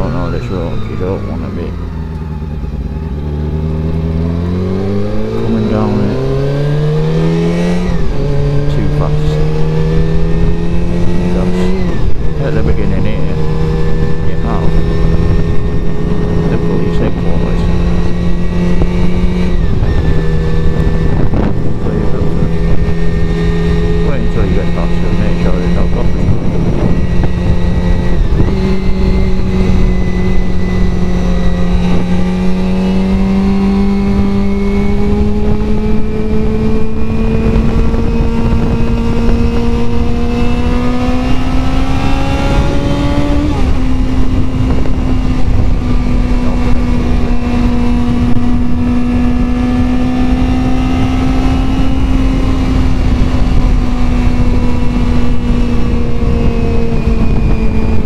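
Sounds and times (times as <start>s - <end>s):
motorcycle engine cruising: 0.0s - 58.0s
wind rush on microphone: 0.0s - 58.0s.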